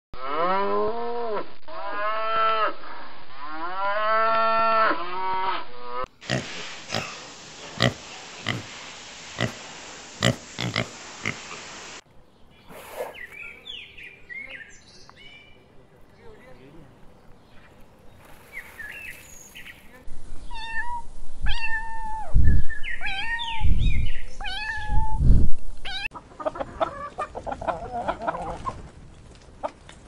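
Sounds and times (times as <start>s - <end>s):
steady hiss: 6.1s - 12.1s.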